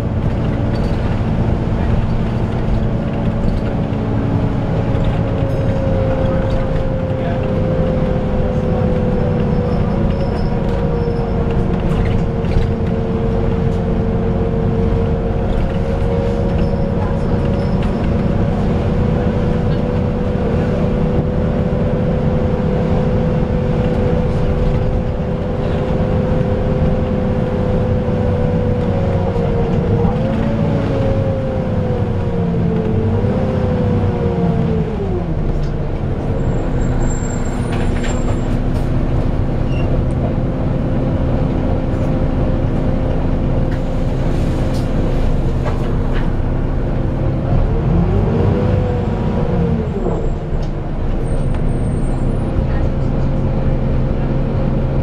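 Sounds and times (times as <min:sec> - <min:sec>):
bus cooling fan whining: 0:00.0 - 0:55.0
bus engine running: 0:00.0 - 0:55.0.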